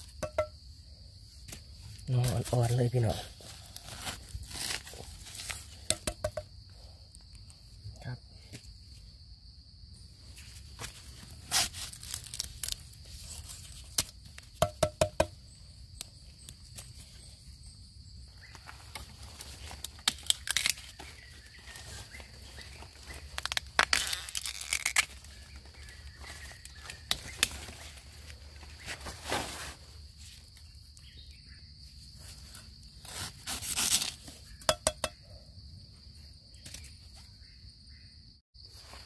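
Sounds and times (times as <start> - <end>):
bamboo rustling and snapping: 3.4 - 6.5, 10.7 - 15.4, 18.5 - 31.1, 32.2 - 35.2, 36.6 - 37.2.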